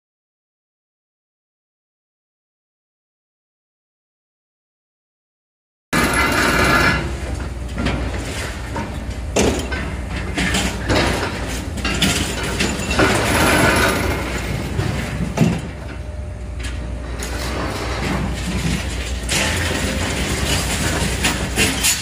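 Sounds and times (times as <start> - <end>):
concrete crunching and clanking: 6.0 - 22.0
demolition excavators running: 6.0 - 22.0.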